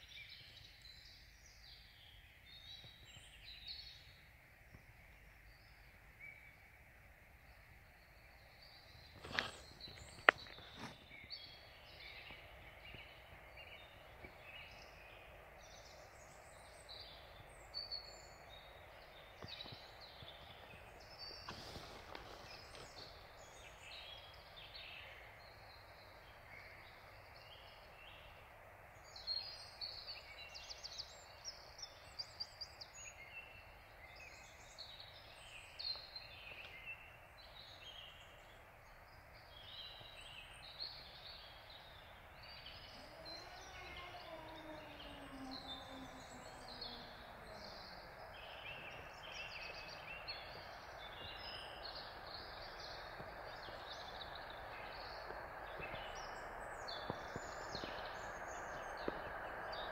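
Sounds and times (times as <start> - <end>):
songbirds chirping and singing: 8.2 - 59.9.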